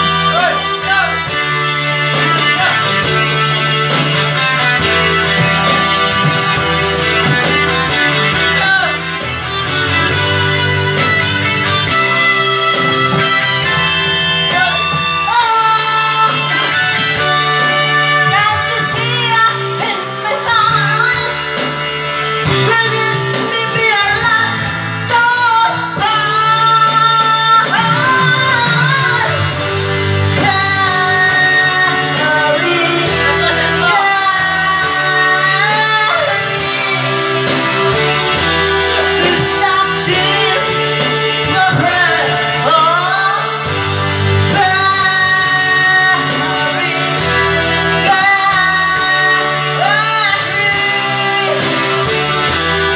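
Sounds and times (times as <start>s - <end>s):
instrumental backing music: 0.0s - 52.9s
man singing into microphone: 13.6s - 21.6s, 22.5s - 29.6s, 30.3s - 37.7s, 38.6s - 52.2s.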